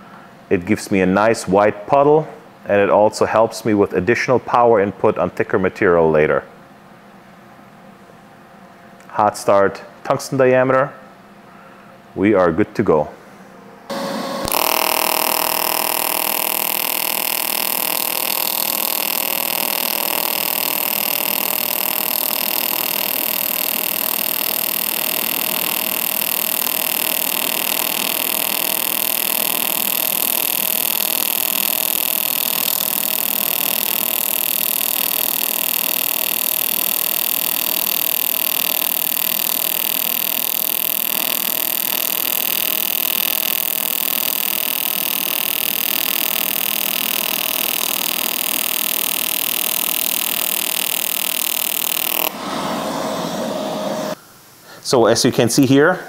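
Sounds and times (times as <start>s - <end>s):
welding arc buzzing hiss: 13.9s - 54.5s.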